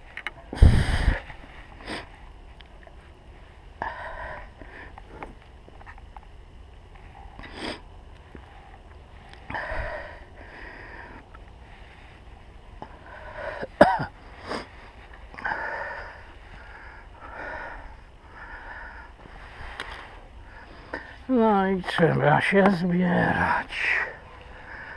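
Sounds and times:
person breathing hard: 0:00.5 - 0:02.2, 0:03.8 - 0:05.4, 0:09.4 - 0:12.2, 0:12.8 - 0:21.3, 0:23.8 - 0:24.9.

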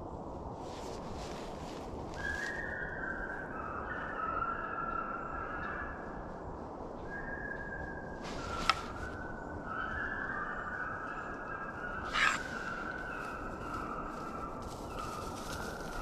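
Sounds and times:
wind rumble: 0:00.0 - 0:16.0
distant hounds baying: 0:09.7 - 0:16.0.

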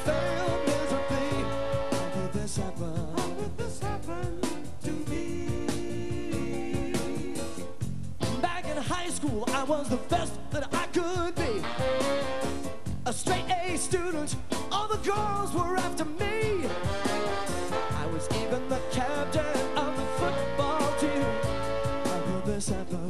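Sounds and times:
drums and bass beat: 0:00.0 - 0:23.0
funk band with horns: 0:00.0 - 0:23.0.

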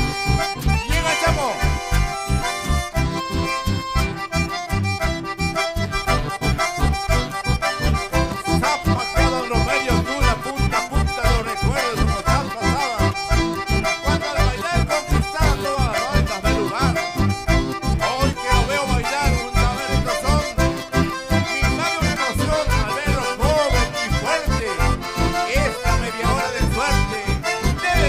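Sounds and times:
button accordions playing melody: 0:00.0 - 0:28.0
steady bass beat: 0:00.0 - 0:28.0.

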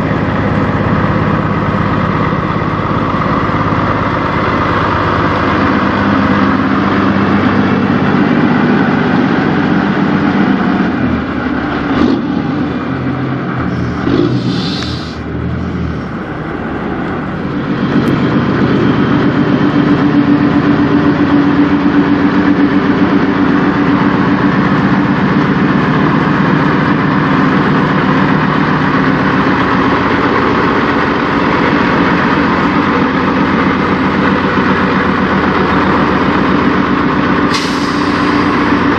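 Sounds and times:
diesel truck engine idling: 0:00.0 - 0:38.9
short air hiss: 0:13.8 - 0:15.2, 0:37.5 - 0:38.6.

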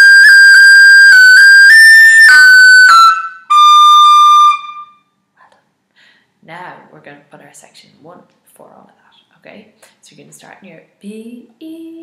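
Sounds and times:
tin whistle playing: 0:00.0 - 0:05.1.

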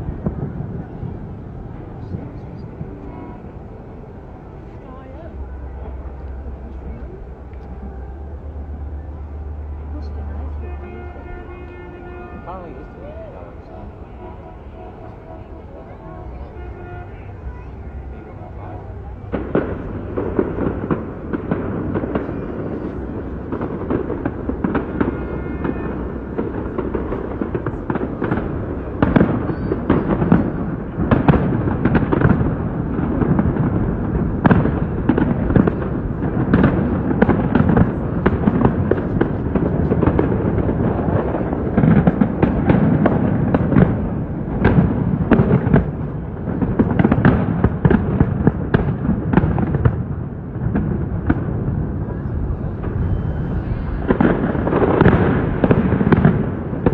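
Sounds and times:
fireworks bangs and crackles: 0:00.0 - 0:56.9.

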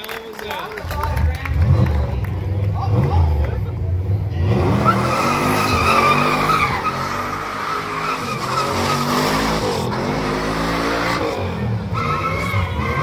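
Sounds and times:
car engine revving high: 0:01.5 - 0:13.0
tyres squealing: 0:04.8 - 0:09.6, 0:11.9 - 0:13.0.

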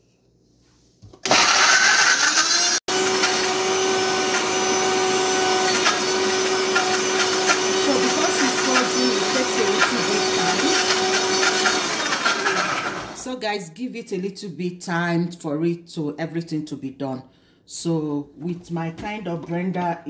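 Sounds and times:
blender running: 0:01.2 - 0:13.3.

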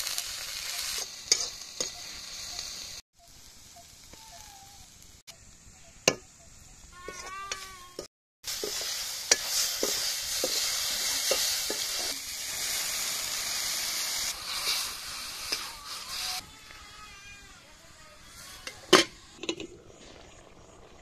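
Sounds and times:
vegetables sizzling in hot oil: 0:00.0 - 0:16.4
water poured into hot pan: 0:08.5 - 0:16.4, 0:19.2 - 0:21.0
ladle knocking and scraping pan: 0:08.6 - 0:12.1.

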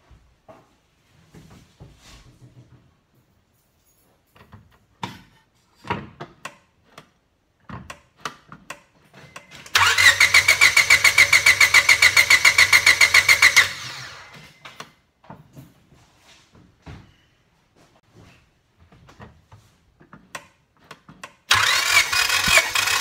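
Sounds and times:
engine cranking without firing: 0:09.6 - 0:14.4, 0:21.4 - 0:23.0.

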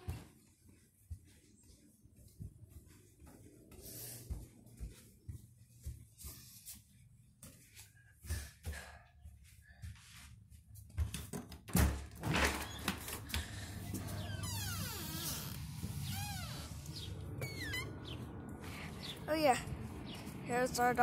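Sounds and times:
soft footsteps: 0:00.0 - 0:11.3
outdoor ambience: 0:00.0 - 0:21.0
sliding door opening: 0:12.1 - 0:18.2.

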